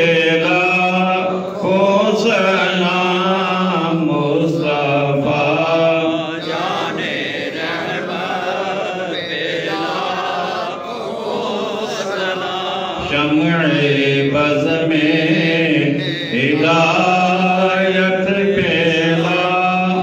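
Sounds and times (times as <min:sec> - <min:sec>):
man chanting unaccompanied: 0:00.0 - 0:20.0.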